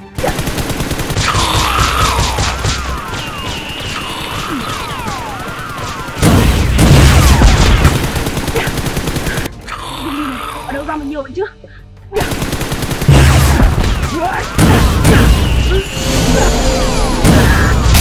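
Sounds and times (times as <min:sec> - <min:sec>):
rapid gunfire sound effect: 0:00.2 - 0:09.5, 0:12.2 - 0:15.5.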